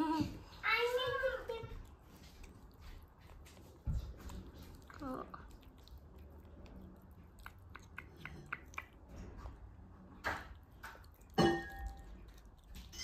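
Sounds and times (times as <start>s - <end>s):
kitten chewing dry kibble: 0.3s - 13.0s
clink on metal bowl: 11.4s - 12.0s.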